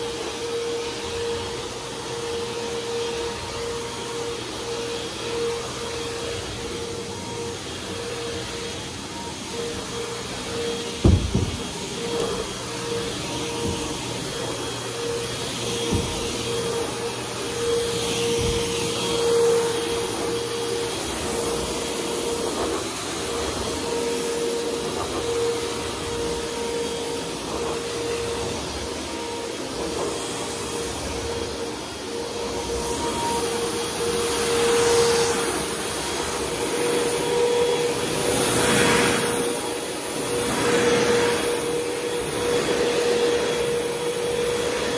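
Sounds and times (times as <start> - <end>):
vacuum cleaner running on carpet: 0.0 - 44.9
sharp knocks: 11.0 - 11.7.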